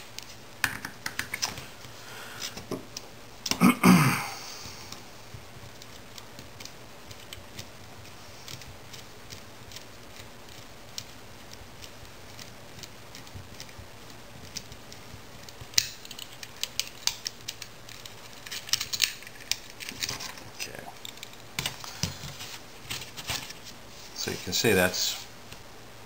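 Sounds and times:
metal parts clicking and tapping: 15.4 - 20.4.

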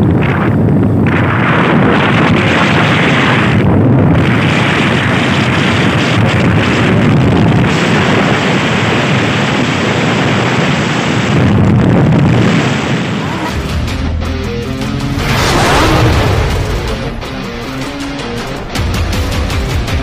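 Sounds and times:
wind buffeting microphone: 0.0 - 13.7
motorcycle road noise: 0.0 - 20.0.

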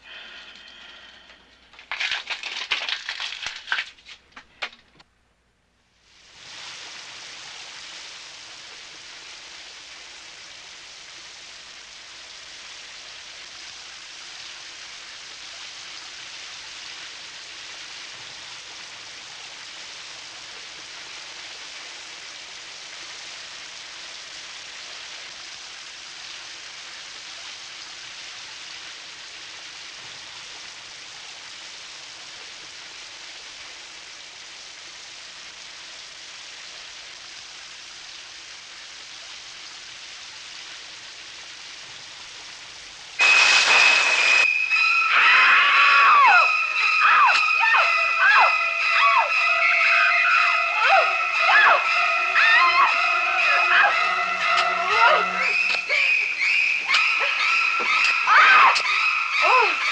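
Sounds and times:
shower head spraying water: 43.2 - 57.0.

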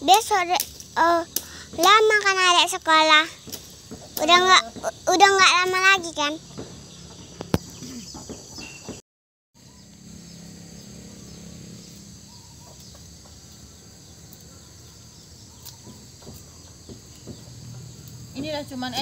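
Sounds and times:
high insect-like hiss: 0.0 - 8.8, 9.6 - 19.0
faint bird calls: 6.5 - 9.0, 11.1 - 18.5.

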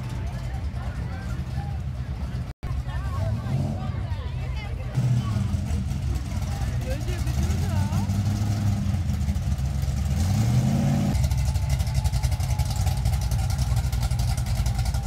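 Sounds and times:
pickup truck engine rumbling: 0.0 - 15.0.

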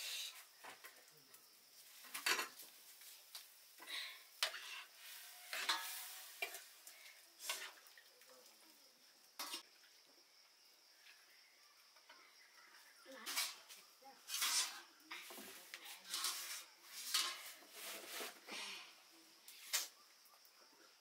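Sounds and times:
metal ladle scraping and clinking: 4.4 - 7.8, 9.4 - 9.6, 13.2 - 18.4.

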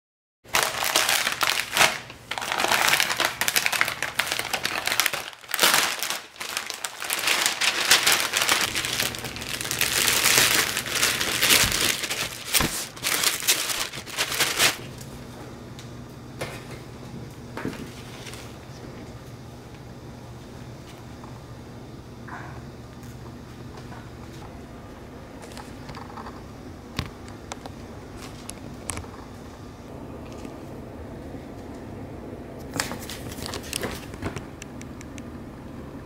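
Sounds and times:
plastic mailer bags crinkling: 0.5 - 14.8, 32.7 - 34.4
faint steady hum: 0.5 - 36.0.

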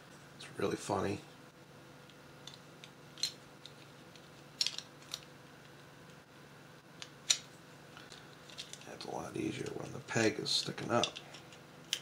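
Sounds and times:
plastic parts clicking together: 3.2 - 5.3.

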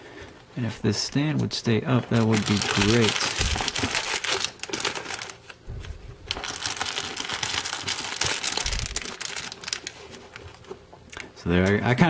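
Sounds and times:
foil packs crinkling: 1.8 - 10.8.

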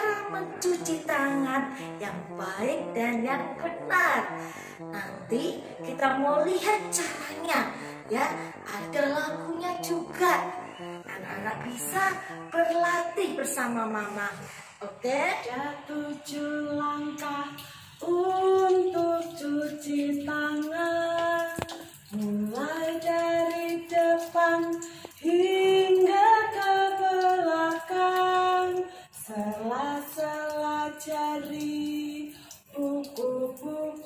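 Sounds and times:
woman singing unaccompanied: 0.0 - 34.0
breaths between phrases: 4.4 - 5.0, 14.1 - 14.8.

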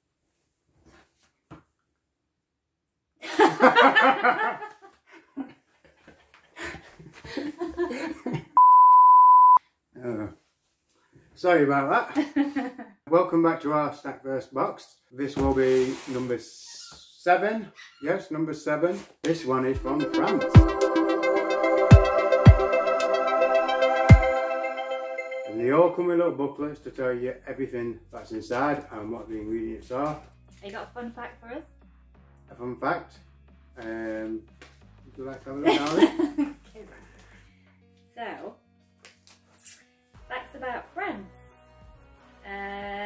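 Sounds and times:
person laughing: 6.6 - 8.6, 35.7 - 37.0
high bleep tone: 8.6 - 9.6
held synthesizer chord: 19.8 - 26.0.

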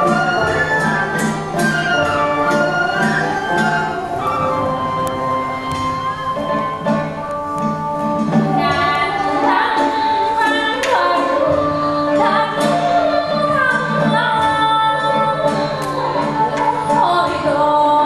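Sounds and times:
traditional ensemble playing: 0.0 - 18.0
women singing: 7.9 - 18.0.

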